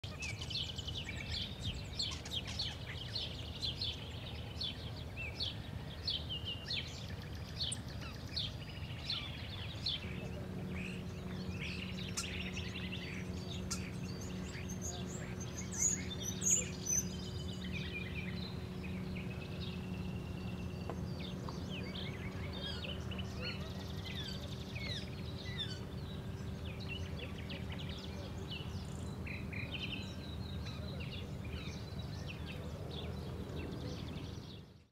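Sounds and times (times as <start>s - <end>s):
birds calling and singing: 0.0s - 34.9s
steady low hum: 0.0s - 34.9s
loud high bird chirps: 6.5s - 32.6s.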